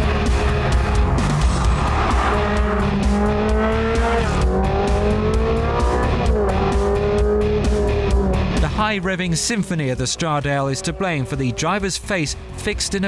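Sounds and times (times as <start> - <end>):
car engine revving: 0.0 - 13.0
music: 0.0 - 13.0.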